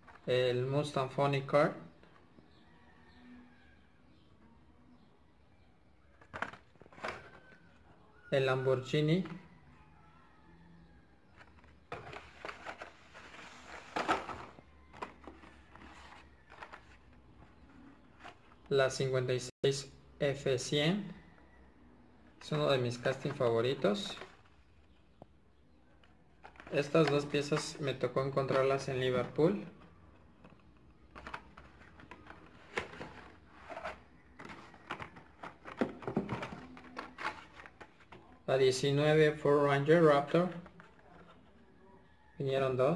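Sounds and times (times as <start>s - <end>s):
cardboard and plastic rustling: 6.1s - 8.0s, 11.3s - 18.7s, 26.0s - 38.4s.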